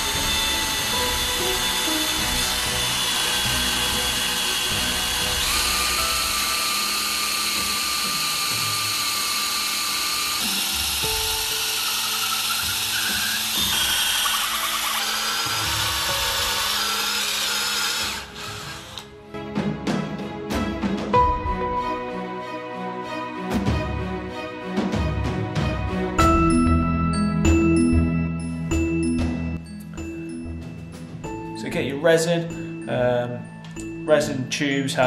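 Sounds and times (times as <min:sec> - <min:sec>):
drill boring into wood: 0:00.0 - 0:19.1
background music: 0:00.0 - 0:35.0.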